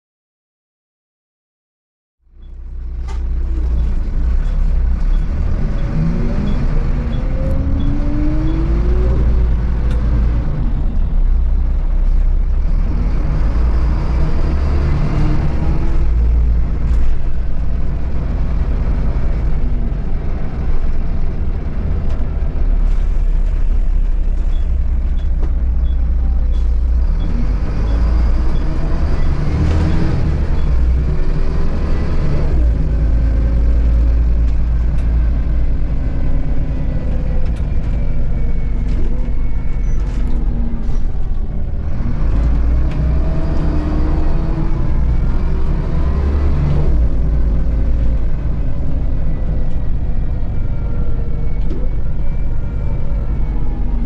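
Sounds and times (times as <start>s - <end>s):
bus diesel engine rumbling: 2.2s - 54.0s.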